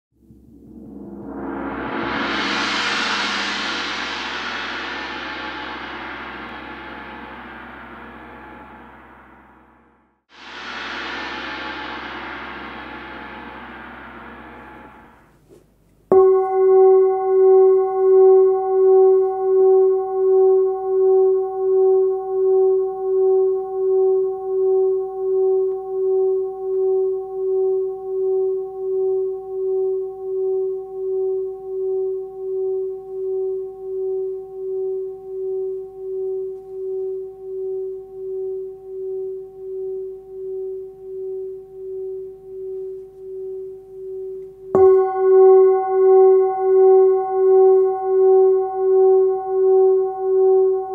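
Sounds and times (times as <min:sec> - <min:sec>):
dense metallic ring: 0:00.2 - 0:15.4, 0:16.1 - 0:21.4, 0:32.8 - 0:50.9
singing bowl ringing: 0:00.6 - 0:09.8, 0:10.6 - 0:15.3, 0:16.1 - 0:50.9.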